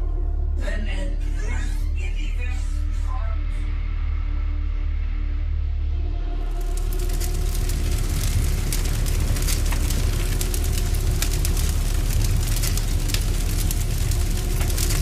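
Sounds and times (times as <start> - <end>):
fire crackling and rumbling: 6.2 - 15.0.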